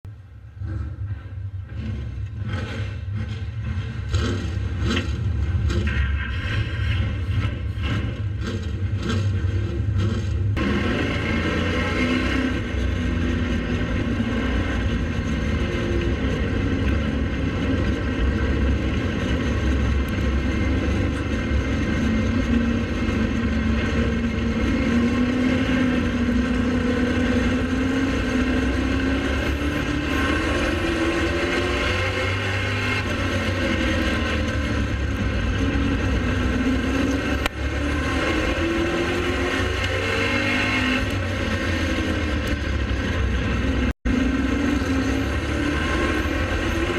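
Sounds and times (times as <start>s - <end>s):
heavy low rumble: 0.0s - 10.8s
race car engine running hard: 0.1s - 46.9s.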